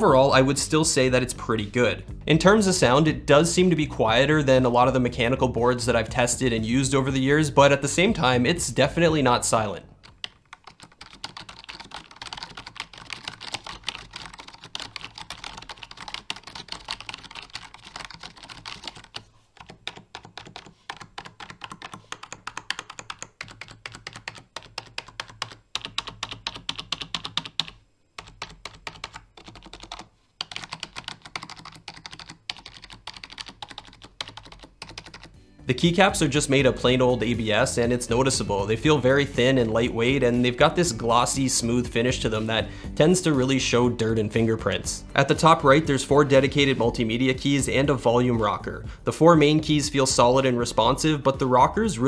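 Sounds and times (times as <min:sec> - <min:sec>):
membrane keyboard typing: 0:05.8 - 0:35.4.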